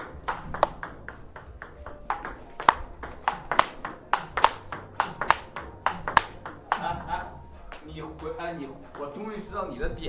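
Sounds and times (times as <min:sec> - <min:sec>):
table tennis ball clicks: 0:00.0 - 0:07.8.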